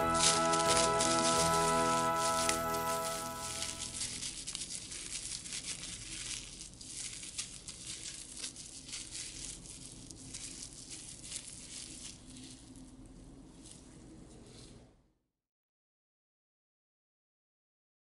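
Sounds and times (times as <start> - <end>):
plastic bag crinkling: 0.0 - 13.9.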